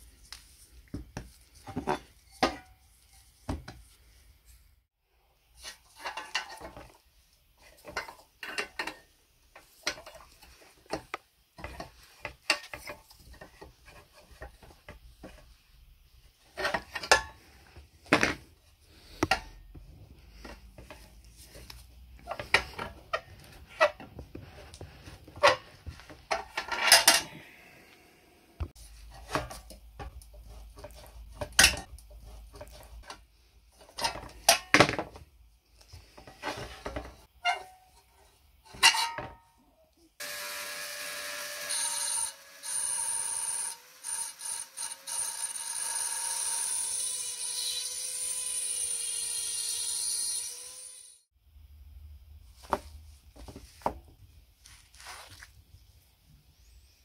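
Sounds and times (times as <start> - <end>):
rotary tool grinding whine: 40.2 - 51.3.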